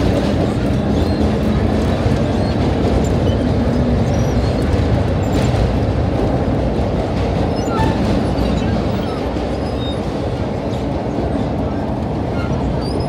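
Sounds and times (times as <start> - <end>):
subway wheels rumbling on rails: 0.0 - 13.0.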